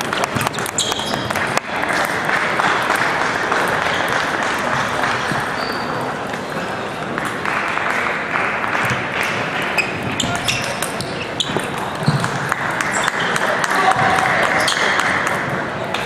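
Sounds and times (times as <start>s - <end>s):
table tennis balls clicking: 0.0s - 4.4s, 8.7s - 13.7s
crowd noise: 0.0s - 16.0s
applause: 1.6s - 5.7s, 7.1s - 9.6s, 12.5s - 15.5s.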